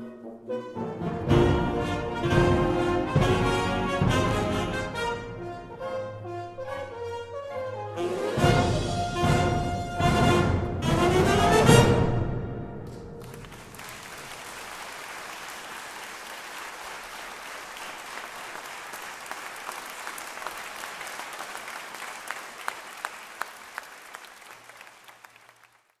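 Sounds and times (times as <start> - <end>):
audience applauding: 12.9 - 26.0.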